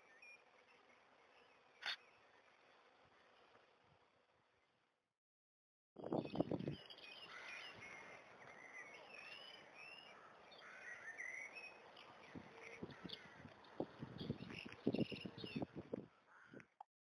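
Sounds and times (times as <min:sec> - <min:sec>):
birds chirping: 0:06.2 - 0:15.8.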